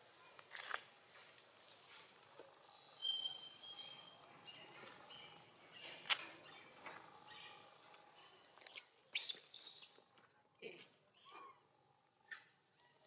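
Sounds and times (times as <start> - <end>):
birds chirping: 1.6 - 10.0.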